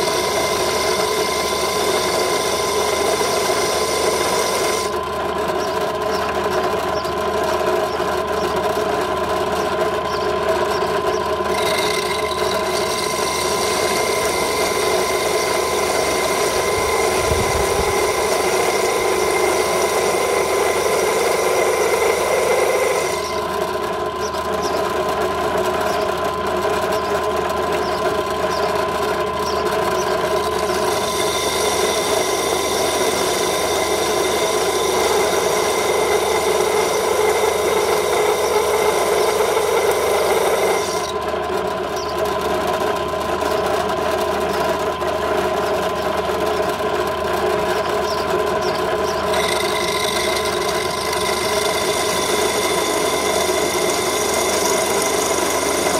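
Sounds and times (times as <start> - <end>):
drill bit grinding glass: 0.0 - 7.1, 10.1 - 23.6, 29.4 - 41.2, 47.7 - 55.9
electric drill whining: 0.0 - 24.7, 26.3 - 41.3, 42.8 - 55.9.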